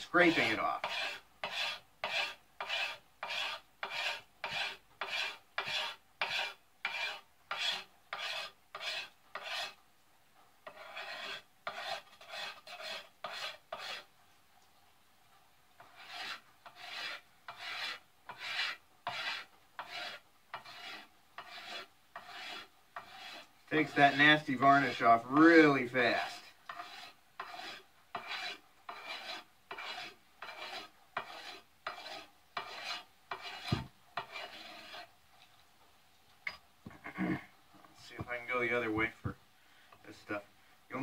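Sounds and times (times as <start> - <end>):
knife scraping wood: 0.0 - 9.8, 10.6 - 14.1, 15.8 - 35.1.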